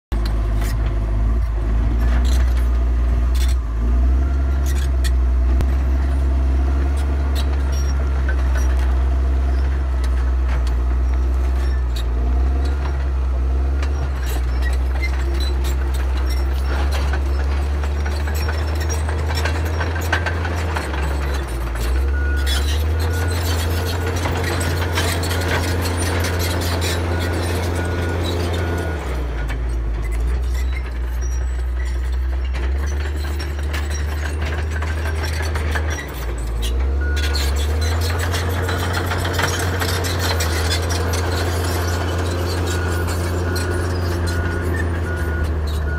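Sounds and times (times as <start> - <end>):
bulldozer diesel engine under load: 0.0 - 45.9
metal clanks and rattles: 13.8 - 45.9.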